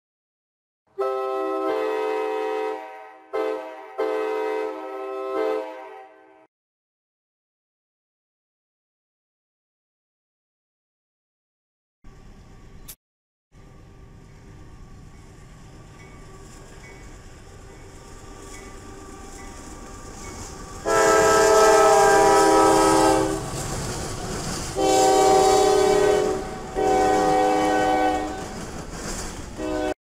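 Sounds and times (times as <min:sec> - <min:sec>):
locomotive air horn blasts: 0:00.9 - 0:06.5, 0:18.8 - 0:23.5, 0:24.8 - 0:28.6, 0:29.6 - 0:30.0
freight train rumble: 0:12.1 - 0:13.0, 0:13.6 - 0:30.0.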